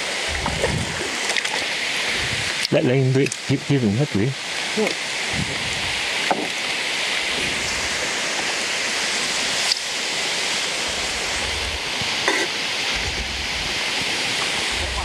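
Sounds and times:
wind rumble on microphone: 0.0s - 1.2s, 2.0s - 2.8s, 5.1s - 6.6s, 7.3s - 8.4s, 10.6s - 12.3s, 12.9s - 15.0s
heavy rain hissing: 0.0s - 15.0s.

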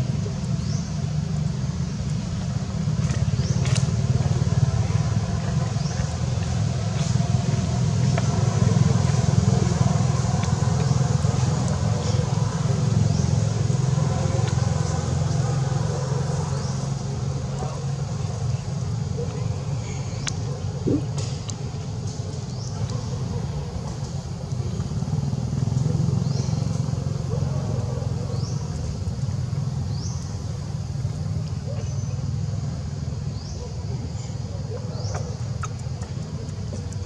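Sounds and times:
steady low rumble: 0.0s - 25.4s.

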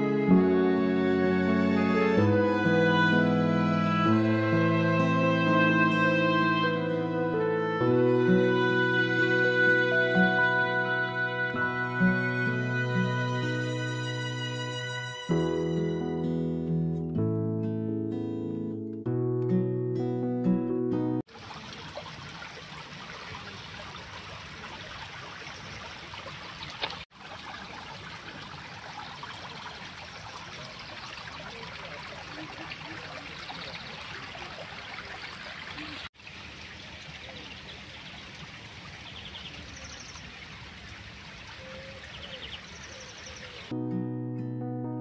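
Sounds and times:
water running and trickling: 21.3s - 43.7s.

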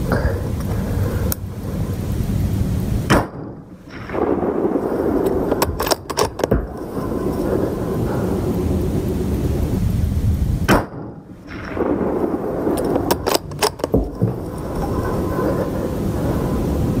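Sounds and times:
low rumble: 0.0s - 17.0s
rifle shot: 3.1s - 6.8s, 10.6s - 14.3s
faint crack: 3.1s - 8.2s, 10.7s - 15.7s
sharp metallic clicks: 5.2s - 6.8s, 12.7s - 14.2s.

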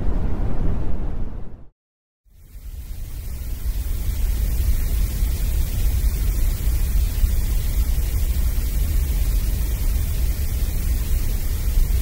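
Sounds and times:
synthetic gray noise hiss: 2.3s - 12.0s.

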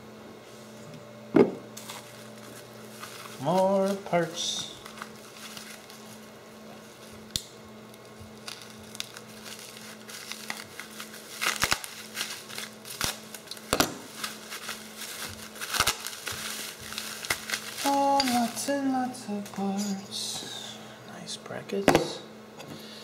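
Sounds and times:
steady low hum: 0.0s - 23.0s
bubble wrap crinkling: 1.8s - 19.7s.

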